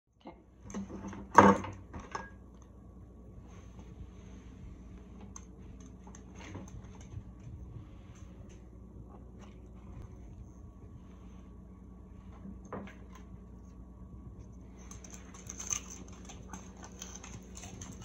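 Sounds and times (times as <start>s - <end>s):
faint steady hum: 0.1s - 18.0s.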